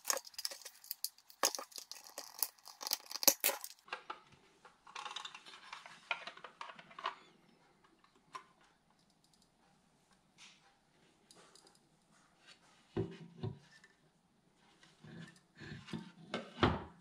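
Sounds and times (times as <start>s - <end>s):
plastic scraping and rubbing: 0.0s - 4.0s, 4.8s - 7.4s.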